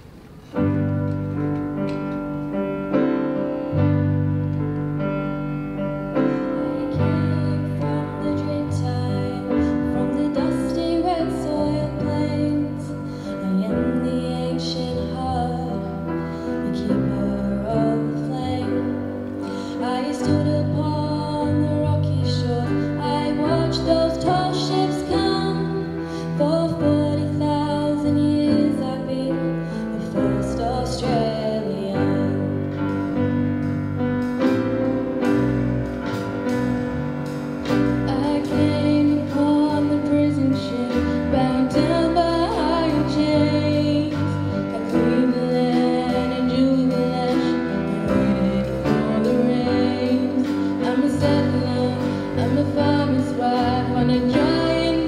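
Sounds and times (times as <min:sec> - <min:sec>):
instrumental accompaniment: 0:00.0 - 0:55.0
steady bass: 0:20.0 - 0:55.0.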